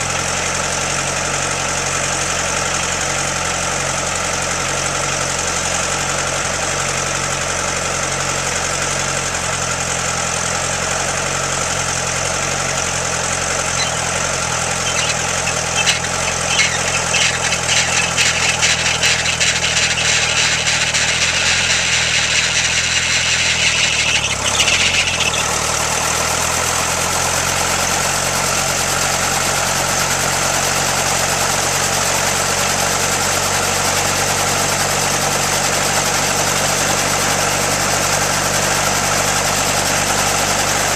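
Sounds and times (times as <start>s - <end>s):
helicopter engine idling: 12.1s - 27.0s.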